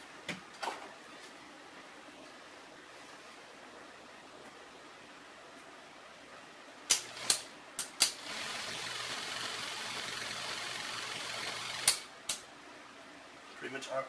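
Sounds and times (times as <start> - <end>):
projector motor and fan whirring: 0.0 - 14.0
projector control clicks: 6.9 - 8.2, 11.4 - 12.4.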